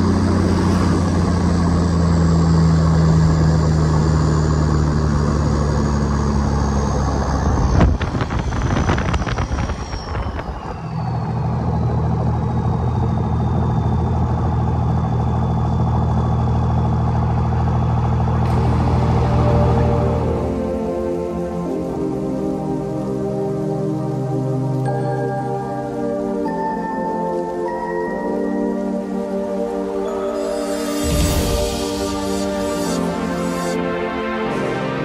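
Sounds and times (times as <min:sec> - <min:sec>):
truck engine running: 0:00.0 - 0:24.8, 0:29.0 - 0:35.0
faint high whine: 0:00.0 - 0:35.0.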